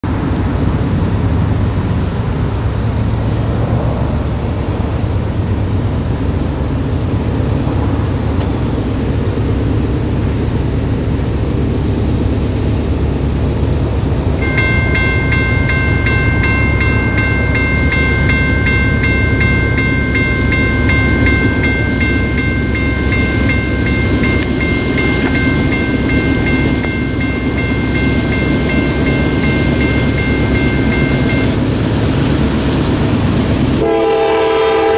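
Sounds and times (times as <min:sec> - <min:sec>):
crossing signal electronic bell ringing: 0:14.4 - 0:31.8, 0:32.4 - 0:34.9.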